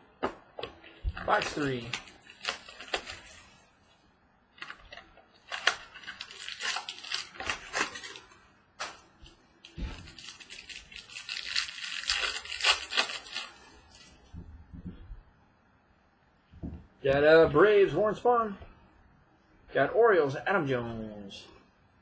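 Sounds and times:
foil wrapper tearing and crinkling: 0:01.2 - 0:03.6, 0:04.6 - 0:14.2.

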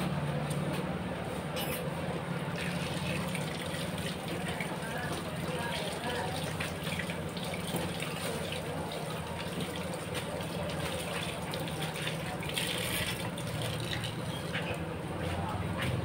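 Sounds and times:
water running from tap: 0:02.4 - 0:14.8.

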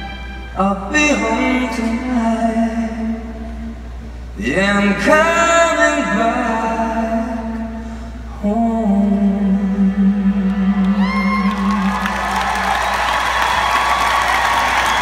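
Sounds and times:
man singing into a microphone: 0:00.6 - 0:03.7, 0:04.4 - 0:12.1.

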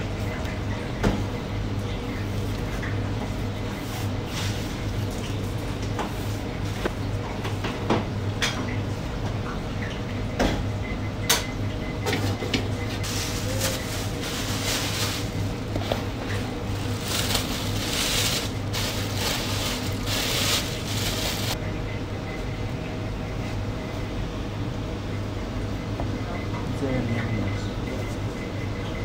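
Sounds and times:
steady low hum: 0:10.1 - 0:29.0
rustling and patting of toppings: 0:12.9 - 0:21.6.

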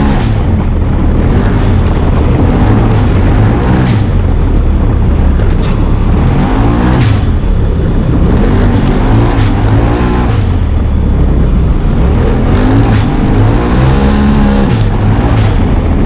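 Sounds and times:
utv engine revving: 0:00.0 - 0:16.0.

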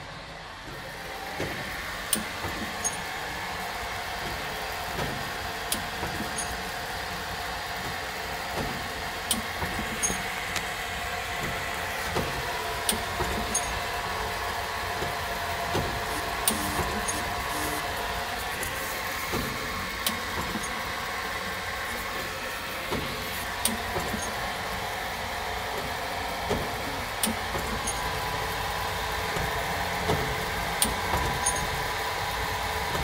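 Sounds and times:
machine motor whirring: 0:00.6 - 0:33.0
sharp mechanical clicks: 0:09.3 - 0:10.7, 0:15.0 - 0:21.0.

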